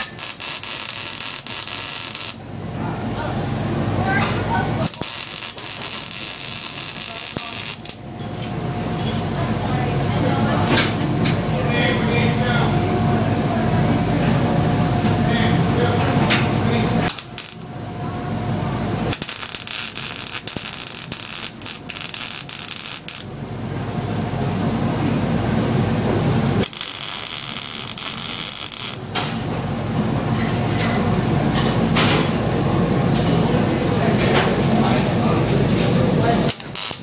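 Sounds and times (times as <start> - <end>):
welder arc crackling on steel: 0.0 - 2.4, 4.0 - 8.1, 16.7 - 17.7, 19.0 - 23.3, 26.5 - 29.2, 36.4 - 37.0.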